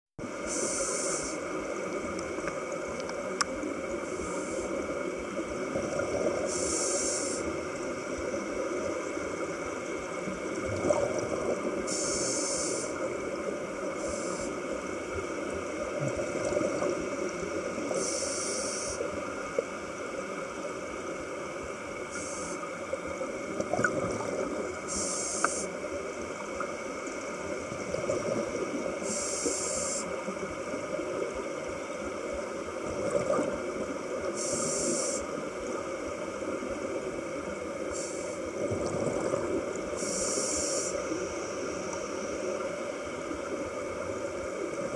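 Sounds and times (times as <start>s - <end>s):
high hisses: 0.5s - 1.4s, 6.5s - 7.5s, 11.9s - 13.0s, 40.0s - 41.7s
underwater bubbles rushing: 4.9s - 6.7s, 7.6s - 12.0s, 14.7s - 18.0s, 22.9s - 25.0s, 25.8s - 29.1s, 30.3s - 34.4s, 38.5s - 40.1s.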